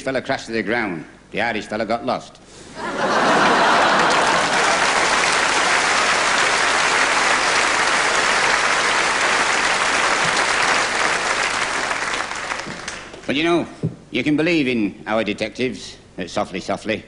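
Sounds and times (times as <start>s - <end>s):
audience laughing: 2.8s - 10.4s
audience applauding: 3.0s - 13.2s.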